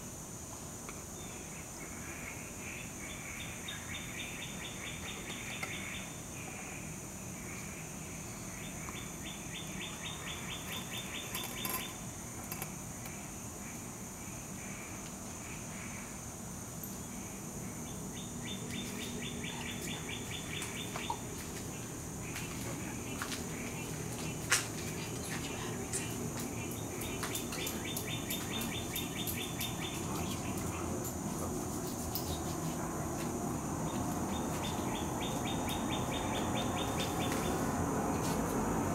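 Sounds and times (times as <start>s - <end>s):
high-pitched insect hum: 0.0s - 38.9s
birds chirping: 8.2s - 12.6s, 17.8s - 31.2s, 33.8s - 37.7s.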